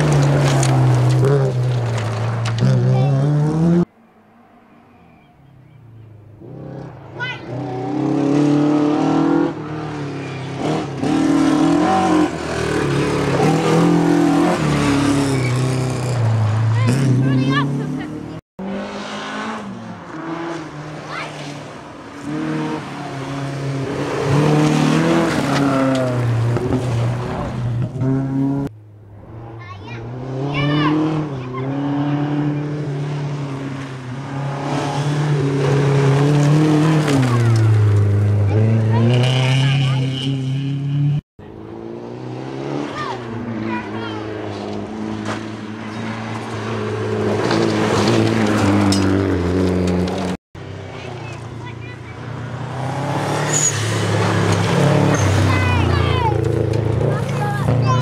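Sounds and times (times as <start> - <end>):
tyres churning gravel: 0.0 - 2.8
rally car engine revving: 0.0 - 3.9, 6.4 - 58.0.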